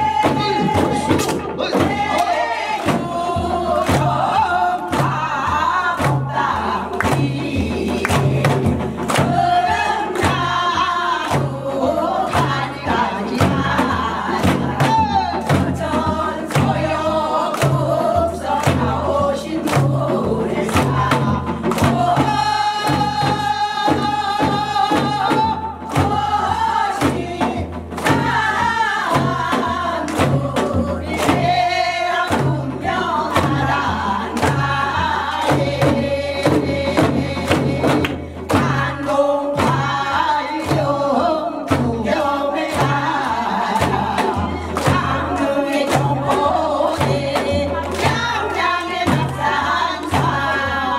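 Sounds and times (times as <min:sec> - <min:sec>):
bass beat: 0:00.0 - 0:02.4
drum strikes: 0:00.0 - 0:50.9
women singing folk song: 0:00.0 - 0:50.9.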